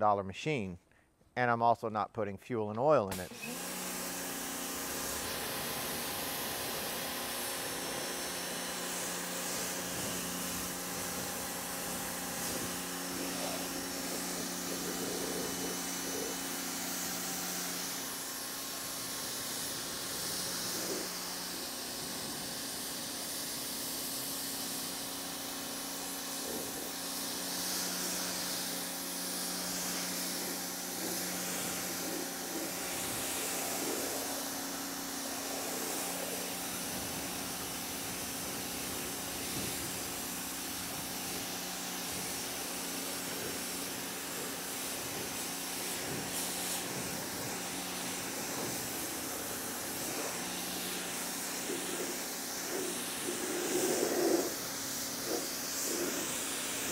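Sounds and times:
pressure washer motor hum: 0:03.1 - 0:56.9
water jet hissing: 0:03.1 - 0:56.9.

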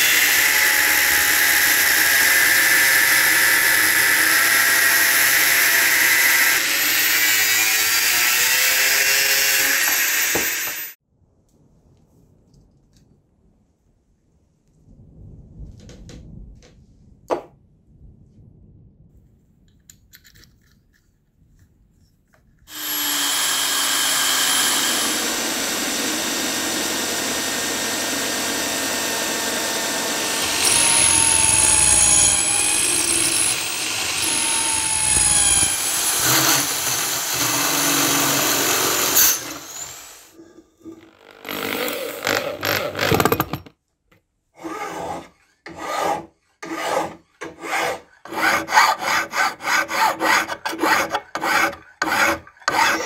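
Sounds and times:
hand saw cutting metal: 0:00.0 - 0:11.0, 0:22.7 - 0:43.4, 0:44.6 - 0:53.0
drill press cutting brass: 0:22.7 - 0:43.3.

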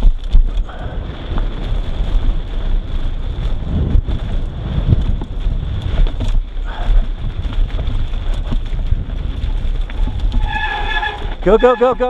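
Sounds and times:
bike rattling: 0:00.0 - 0:12.0
tyres crunching over dirt: 0:00.0 - 0:12.0
wind buffeting microphone: 0:00.0 - 0:12.0.

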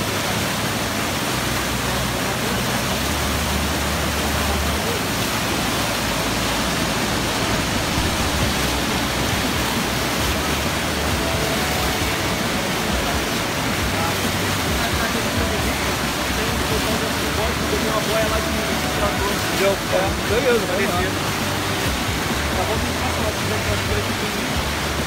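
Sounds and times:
waterfall rushing: 0:00.0 - 0:25.0.

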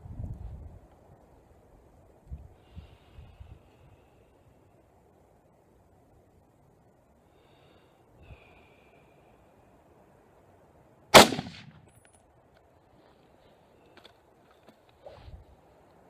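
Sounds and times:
rifle shot with ringing tail: 0:11.2 - 0:11.9.

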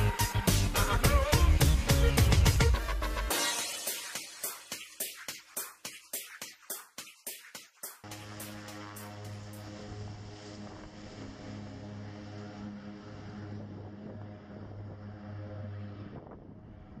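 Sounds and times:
propeller plane taking off: 0:08.1 - 0:17.0.

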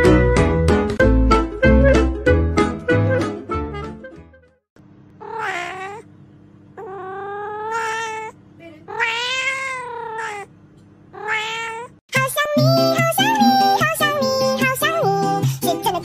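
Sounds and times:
cat meowing: 0:05.2 - 0:06.1, 0:06.8 - 0:10.5, 0:11.1 - 0:12.0.

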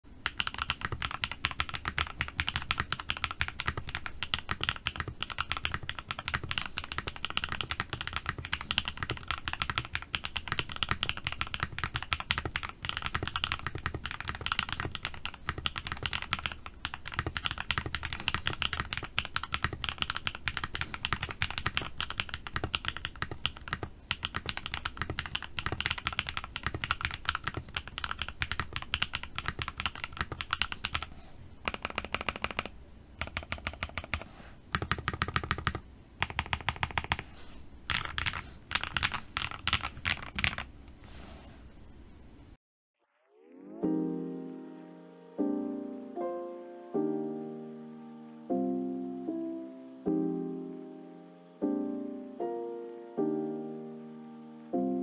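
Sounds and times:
fast typing on mechanical keyboard: 0:00.2 - 0:37.3, 0:37.9 - 0:40.7.

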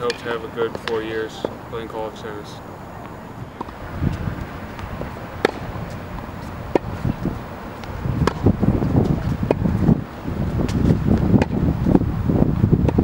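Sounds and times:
tennis ball hit with racket: 0:00.0 - 0:01.6, 0:03.0 - 0:11.6
wind rumbling on microphone: 0:00.0 - 0:13.0.

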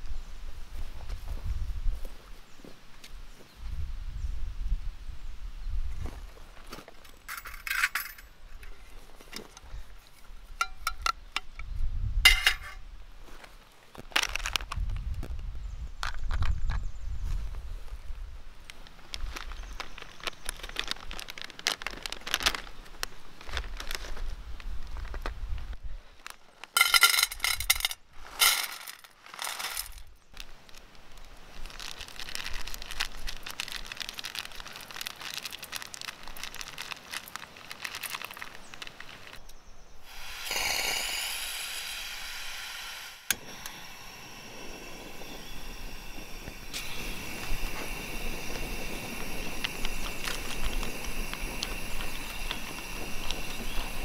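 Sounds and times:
stove hissing: 0:12.3 - 0:12.8, 0:40.0 - 0:54.0
plastic packet crackling: 0:14.0 - 0:14.8, 0:18.7 - 0:25.3, 0:27.4 - 0:39.4, 0:47.4 - 0:54.0.

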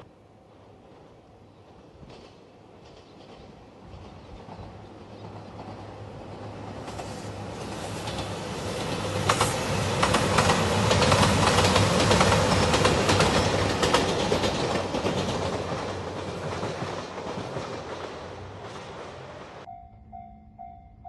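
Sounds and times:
train wheels clacking on rail joints: 0:02.0 - 0:19.7
diesel train engines running: 0:03.6 - 0:19.8.

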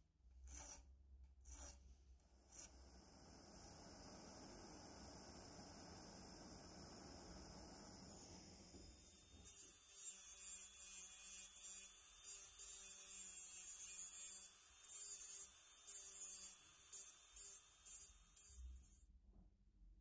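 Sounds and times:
rotary tool grinding metal: 0:00.4 - 0:02.8, 0:08.2 - 0:19.0.

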